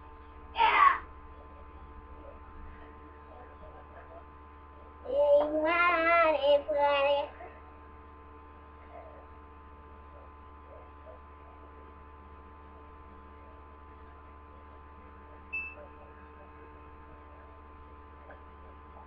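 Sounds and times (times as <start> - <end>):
steady electrical hum: 0.0 - 19.0
child singing wavering notes: 5.1 - 7.4.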